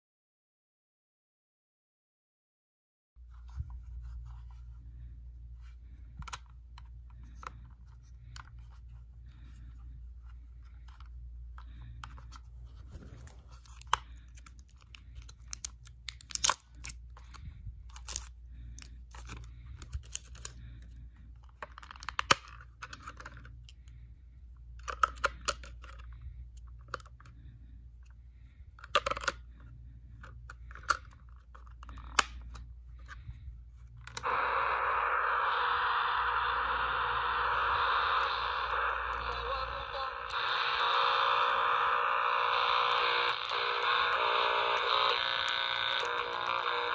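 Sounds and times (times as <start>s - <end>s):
radio static hiss: 34.2s - 46.9s.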